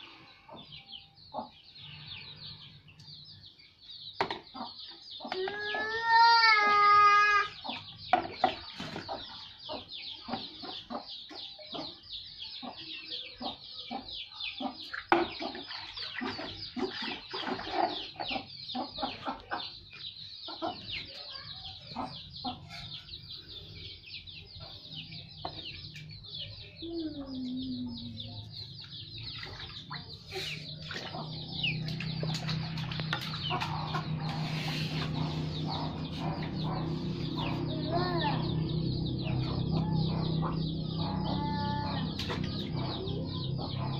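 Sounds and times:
chickens clucking: 0:04.2 - 0:05.9, 0:07.4 - 0:43.9
water splashing in a plastic tub: 0:15.0 - 0:18.2, 0:29.3 - 0:30.2.

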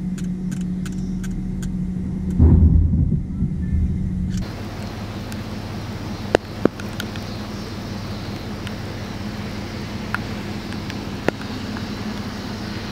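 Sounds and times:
vehicle engine idling: 0:00.0 - 0:12.9
sharp clicks: 0:00.1 - 0:02.4
wind noise: 0:00.9 - 0:05.5.

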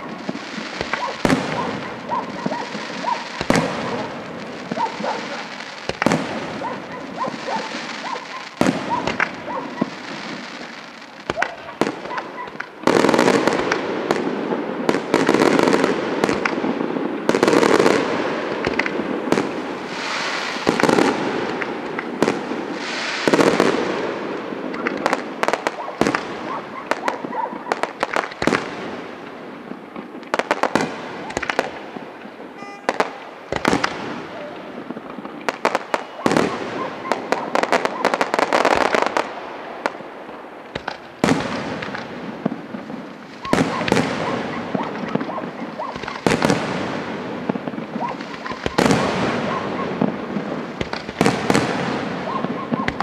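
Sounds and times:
firework shells bursting: 0:00.1 - 0:14.3, 0:15.0 - 0:23.9, 0:40.7 - 0:53.0.

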